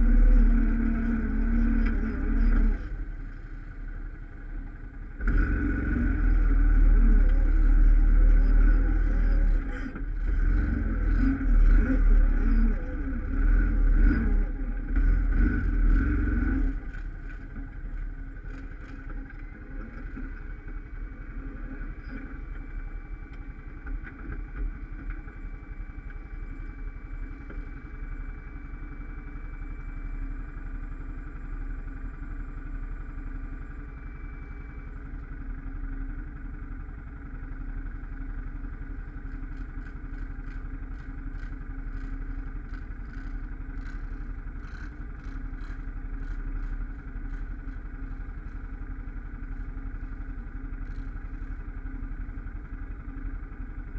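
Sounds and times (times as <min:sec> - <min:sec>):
atv engine revving: 0:00.0 - 0:03.0, 0:05.2 - 0:17.3.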